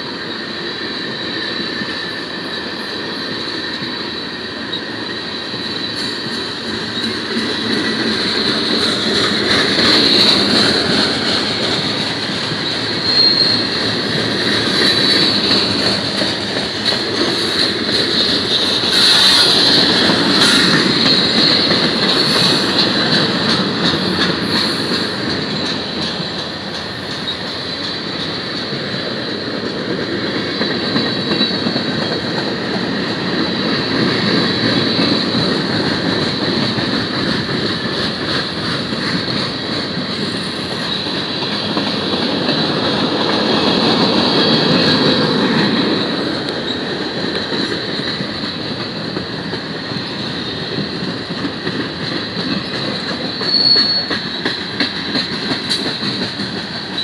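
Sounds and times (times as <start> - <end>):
train wheels rumbling and clattering: 0.0 - 57.0
high-pitched wheel squeal: 9.8 - 16.0, 53.4 - 54.4.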